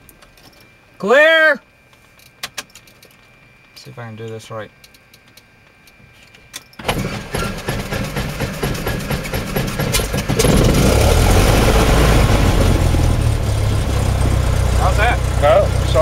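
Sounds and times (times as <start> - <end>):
aircraft engine starter cranking: 6.5 - 11.0
aircraft engine running: 6.8 - 16.0.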